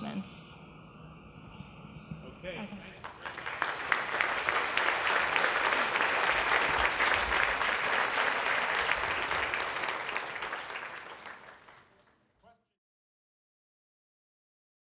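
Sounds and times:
audience applauding: 2.7s - 12.3s.

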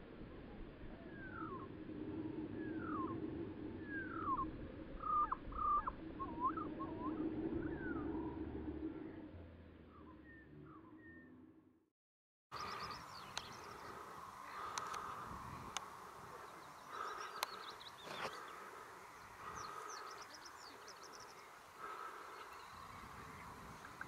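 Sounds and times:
insect-like buzz: 12.6s - 24.0s
sharp clicks: 14.7s - 15.9s, 17.2s - 18.4s.

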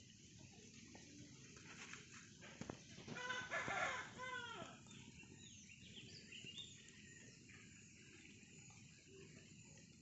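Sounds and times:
small birds chirping: 0.0s - 10.0s
rooster crowing: 3.1s - 4.8s.

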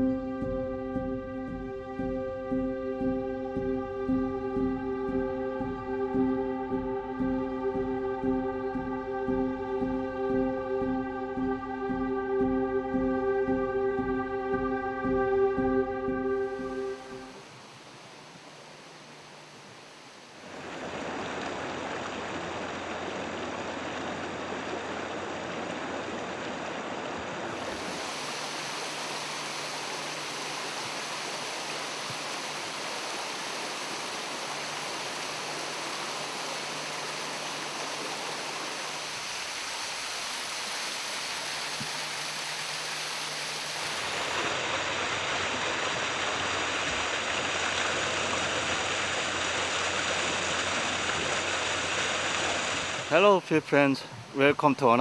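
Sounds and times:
small waterfall rushing: 16.6s - 55.0s.

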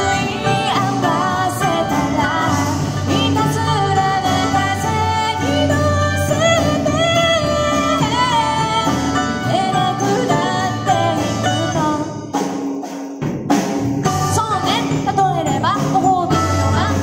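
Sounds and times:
woman singing: 0.0s - 12.3s, 14.3s - 17.0s
melodicas: 0.0s - 12.9s
drums: 0.0s - 17.0s.

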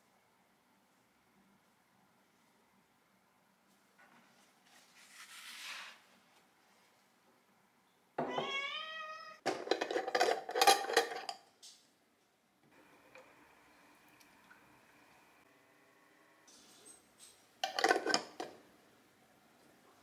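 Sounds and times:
notebook brushing on table: 4.6s - 6.2s
cat meowing: 8.2s - 9.4s.

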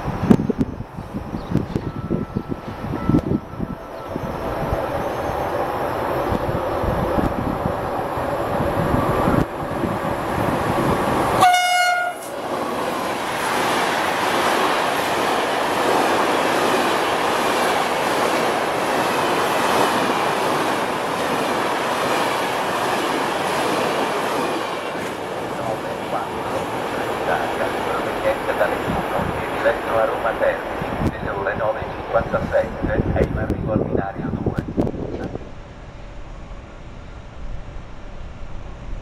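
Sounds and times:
train horn blast: 11.4s - 12.4s.

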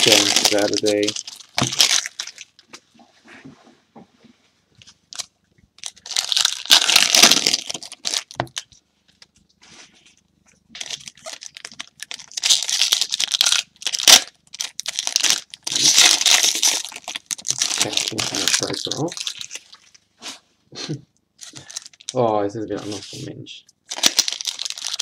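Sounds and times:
foil wrappers crinkling: 0.0s - 2.7s, 5.1s - 9.2s, 10.7s - 20.0s, 21.4s - 22.2s, 23.9s - 25.0s.

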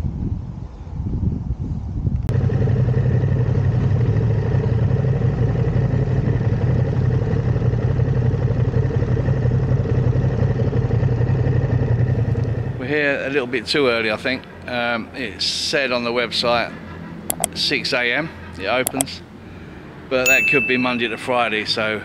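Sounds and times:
motorcycle engine running: 2.3s - 13.3s.

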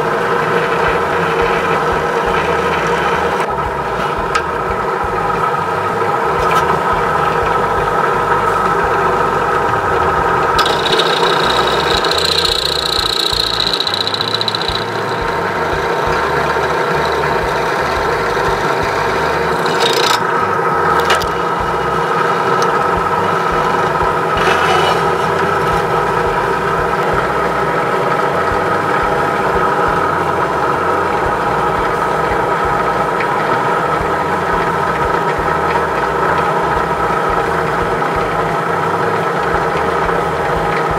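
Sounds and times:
drill press motor running: 0.0s - 40.9s
high whine: 0.0s - 40.9s
drill bit scraping metal: 10.6s - 20.3s.

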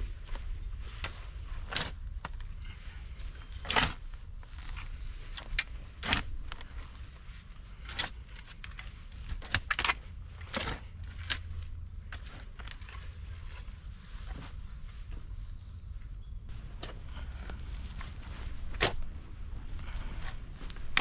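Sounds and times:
steady low rumble: 0.0s - 21.0s
shovel digging into soil: 1.0s - 6.5s, 16.8s - 19.2s.

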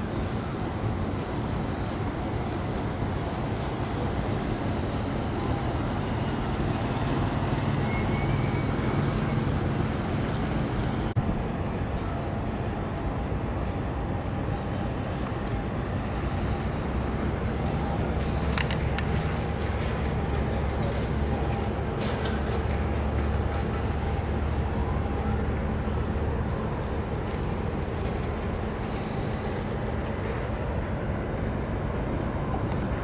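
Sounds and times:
engine rumble: 0.0s - 33.0s.

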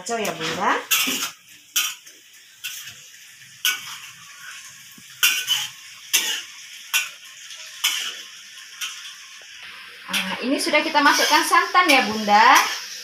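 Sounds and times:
faint simmering: 0.0s - 13.0s
metal ladle scraping a wok: 0.2s - 3.0s, 5.2s - 7.2s, 7.8s - 8.2s, 10.1s - 13.0s.

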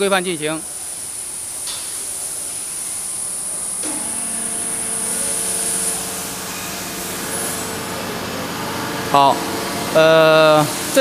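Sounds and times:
machinery high hiss: 0.0s - 11.0s
machine humming with fixed tones: 2.9s - 11.0s.

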